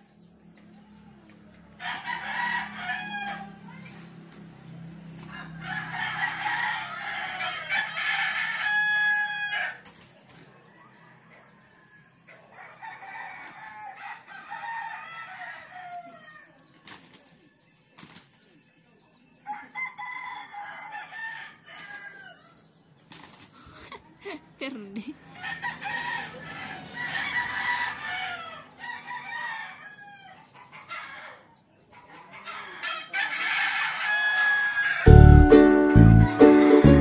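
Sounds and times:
roosters crowing: 0.0s - 18.3s, 19.2s - 37.0s
wing flaps of sparring roosters: 16.8s - 18.6s, 23.0s - 23.6s.

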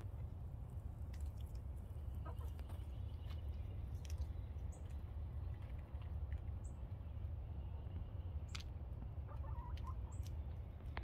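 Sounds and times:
steady low rumble: 0.0s - 11.0s
hens clucking: 2.1s - 3.0s, 9.2s - 10.4s.

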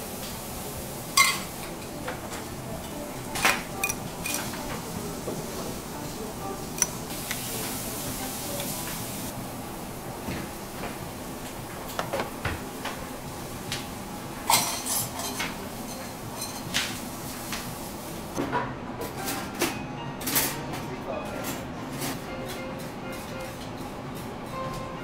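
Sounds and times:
plates and utensils clinking: 1.1s - 9.2s, 14.4s - 17.0s
pepper mill grinding: 3.4s - 4.6s.

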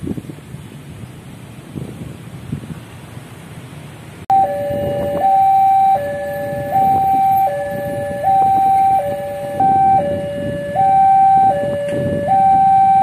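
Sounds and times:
two-tone crossing alarm: 4.3s - 13.0s.

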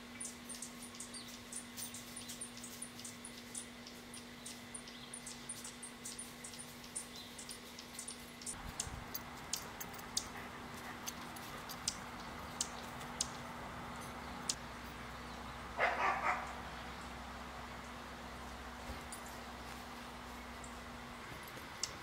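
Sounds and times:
dog barking: 15.8s - 16.6s.

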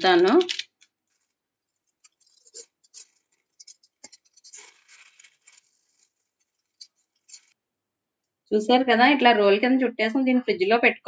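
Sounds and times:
aluminium foil crinkling: 0.0s - 7.6s.

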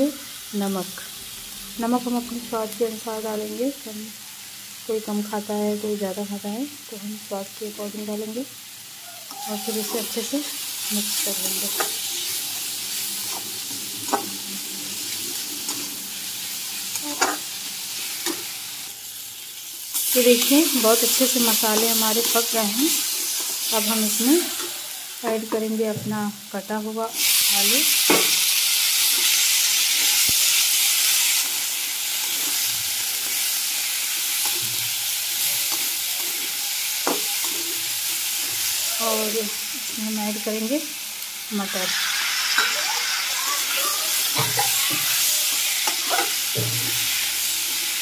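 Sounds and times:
masala sizzling in a pan: 0.0s - 48.0s
metal spatula scraping a pan: 34.3s - 38.8s, 41.8s - 47.3s.

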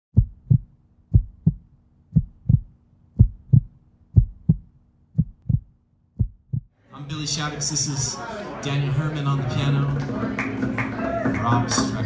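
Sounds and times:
heartbeat thumps: 0.1s - 6.7s.

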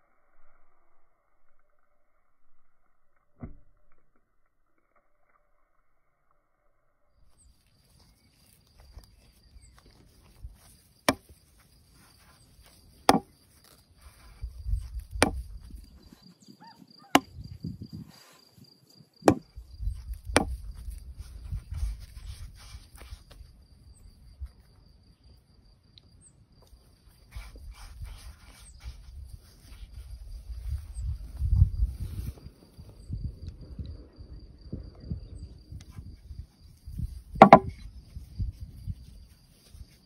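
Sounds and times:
faint insect trill: 0.0s - 40.0s
knocks on wooden board: 13.1s - 13.3s, 37.4s - 37.8s.

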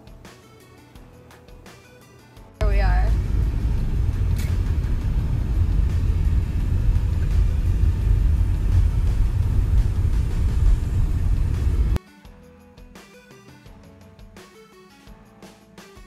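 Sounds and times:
road and wind noise in car: 2.6s - 12.0s.

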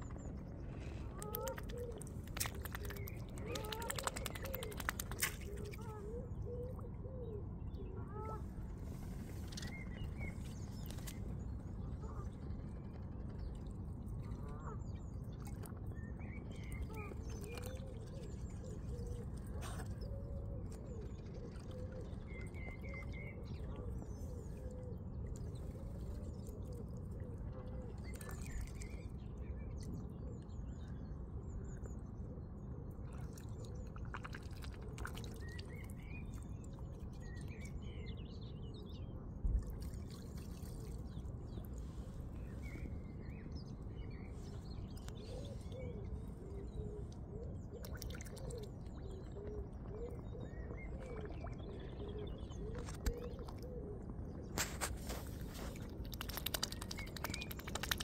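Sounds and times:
swan dabbling in water: 1.0s - 6.1s, 33.0s - 36.2s, 47.7s - 51.6s, 54.4s - 58.0s.

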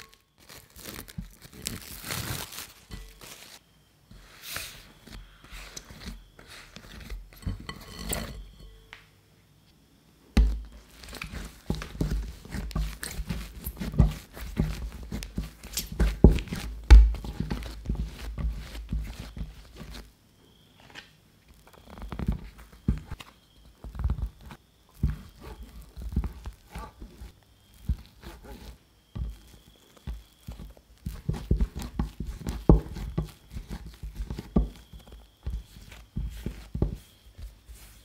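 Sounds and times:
dough thumping and slapping: 10.4s - 20.1s, 22.0s - 38.0s.

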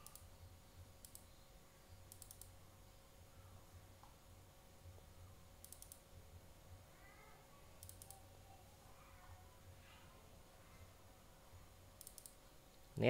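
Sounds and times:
keyboard typing: 0.0s - 0.3s, 2.1s - 2.5s, 5.6s - 6.0s, 7.8s - 8.2s, 12.0s - 12.4s.

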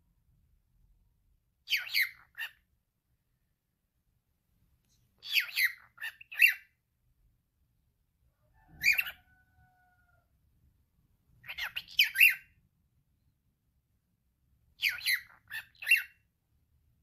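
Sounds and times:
cockatiel chattering: 1.7s - 2.6s, 5.2s - 6.7s, 8.8s - 9.2s, 11.4s - 12.5s, 14.8s - 16.2s
cockatiel whistle: 8.7s - 9.2s, 11.5s - 12.5s.

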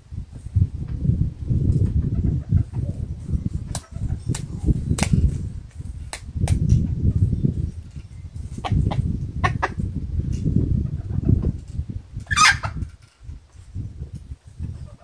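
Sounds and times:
chicken wings flapping: 1.7s - 6.8s.

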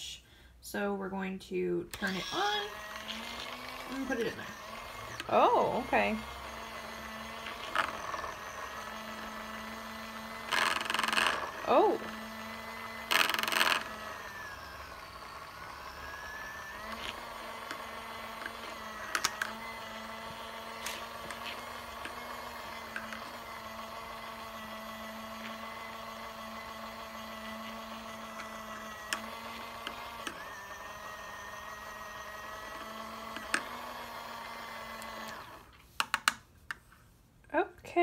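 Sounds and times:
small washing machine motor whirring: 1.9s - 35.8s.

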